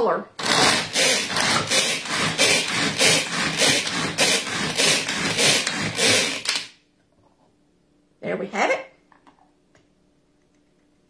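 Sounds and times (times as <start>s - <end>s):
pull-cord food chopper chopping: 0.4s - 6.8s.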